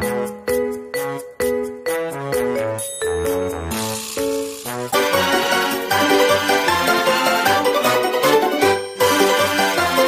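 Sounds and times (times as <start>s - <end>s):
cheerful tune of struck notes: 0.0s - 10.0s.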